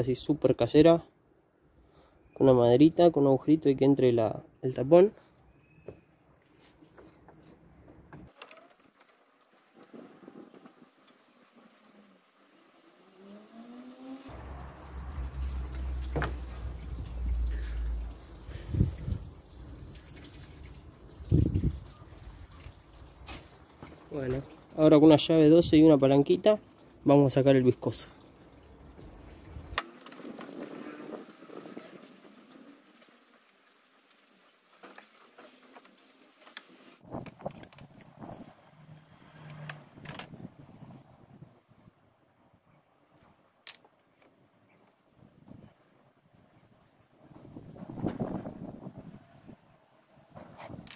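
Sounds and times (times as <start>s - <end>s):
coolant splashing into container: 9.0s - 25.0s.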